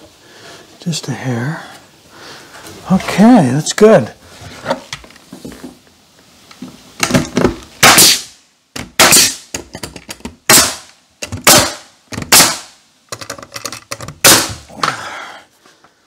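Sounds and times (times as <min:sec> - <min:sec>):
nail gun firing: 0:07.0 - 0:09.7, 0:10.5 - 0:12.8, 0:14.2 - 0:14.6.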